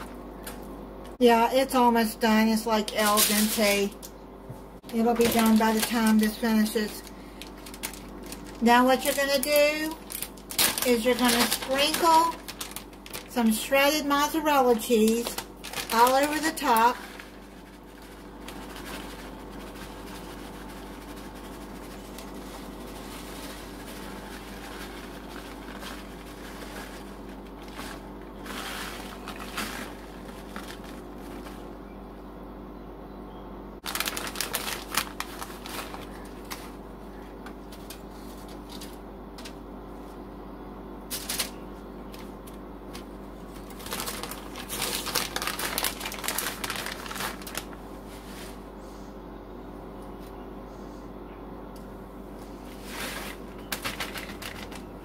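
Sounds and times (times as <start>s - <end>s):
steady low hum: 0.0s - 55.0s
plastic bag crinkling: 2.8s - 4.1s, 4.8s - 31.8s, 33.8s - 36.8s, 42.9s - 48.3s, 52.8s - 55.0s.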